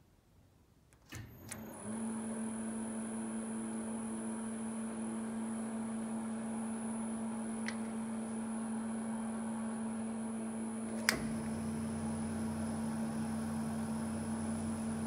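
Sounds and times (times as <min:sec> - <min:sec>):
slicer machine humming: 0:01.3 - 0:15.0
low motor hum: 0:04.0 - 0:15.0.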